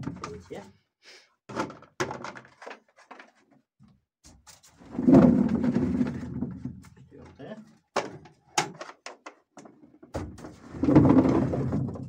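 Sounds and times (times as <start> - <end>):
bucket and potatoes knocking: 10.1 - 12.0.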